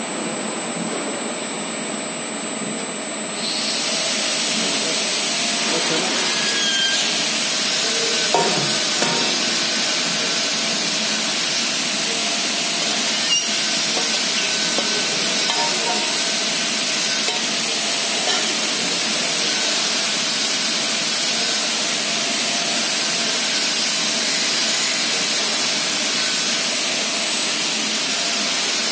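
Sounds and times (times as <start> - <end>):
paddle mixer churning powder: 3.8 - 21.4.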